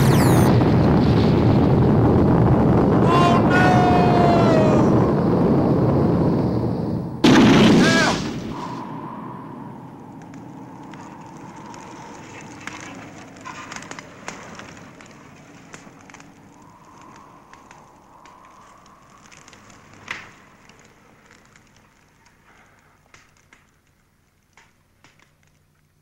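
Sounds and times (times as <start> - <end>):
loud explosion: 0.0 - 12.6
fire crackling: 0.0 - 26.0.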